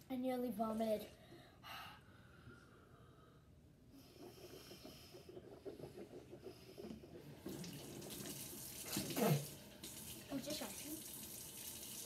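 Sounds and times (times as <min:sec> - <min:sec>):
tap water running: 0:07.3 - 0:12.0.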